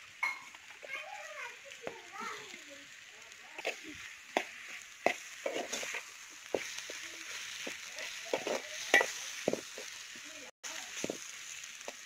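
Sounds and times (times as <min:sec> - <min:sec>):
food sizzling in oil: 0:00.0 - 0:12.0
metal spoon stirring in pot: 0:03.5 - 0:10.2.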